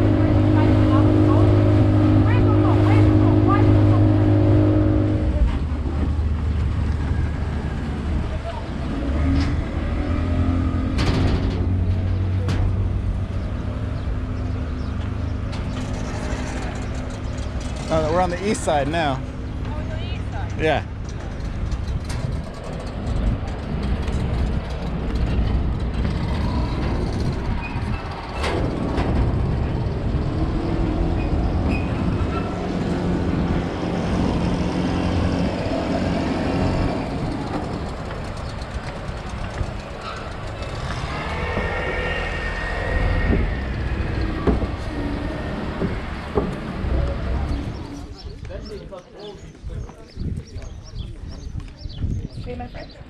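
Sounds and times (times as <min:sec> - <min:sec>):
vehicle engine rumbling: 0:00.0 - 0:53.0.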